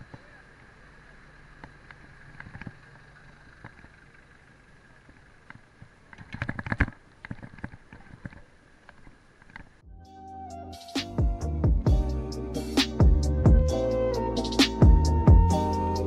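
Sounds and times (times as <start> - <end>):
bike rolling on pavement: 0.0 - 9.8
faint high whine: 0.0 - 9.9.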